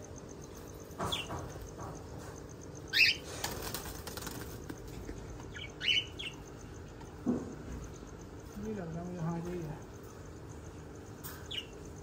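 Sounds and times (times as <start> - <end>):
wings fluttering: 3.0 - 5.6.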